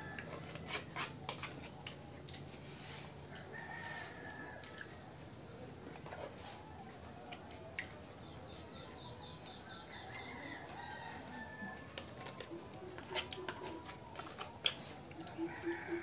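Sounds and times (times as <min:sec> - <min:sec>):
rooster crowing: 0:03.3 - 0:05.0, 0:09.8 - 0:14.4, 0:15.1 - 0:16.0
chickens clucking: 0:04.8 - 0:16.0.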